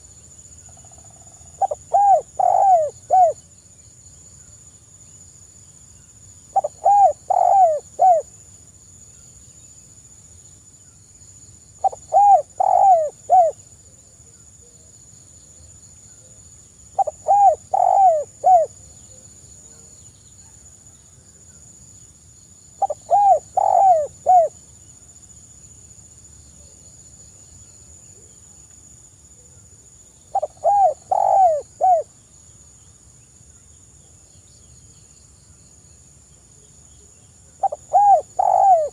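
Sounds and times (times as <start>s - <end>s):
dove cooing softly: 0.7s - 3.4s, 6.5s - 8.3s, 11.8s - 13.6s, 17.0s - 20.6s, 22.8s - 24.6s, 30.3s - 32.1s, 37.6s - 38.9s.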